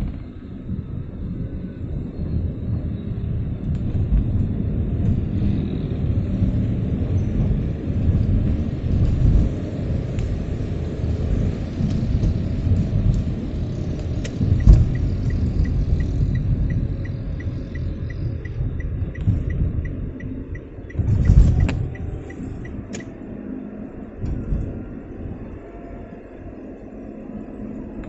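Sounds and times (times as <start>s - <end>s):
engine and tyres rumbling: 0.0s - 28.0s
faint regular ticking: 14.2s - 23.1s.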